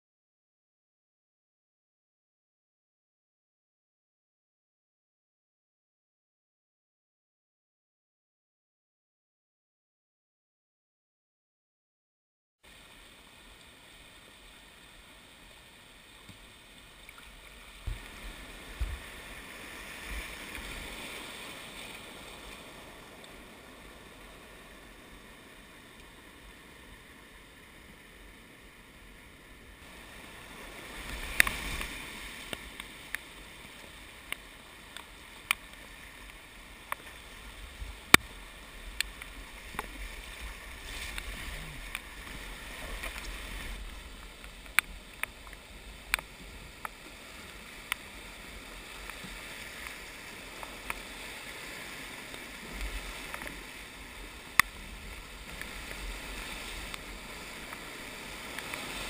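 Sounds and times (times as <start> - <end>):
whitewater rushing: 29.8 - 59.0.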